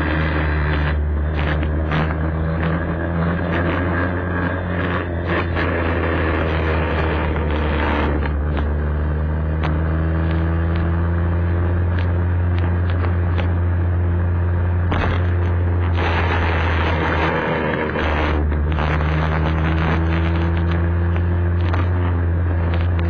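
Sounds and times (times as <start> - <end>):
scooter engine running: 0.0 - 23.0.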